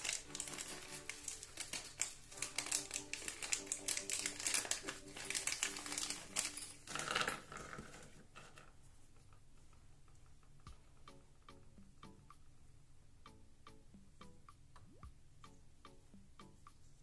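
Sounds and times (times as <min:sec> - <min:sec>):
plastic pawns clicking: 0:00.0 - 0:08.5
plastic bag crinkling: 0:00.0 - 0:08.8.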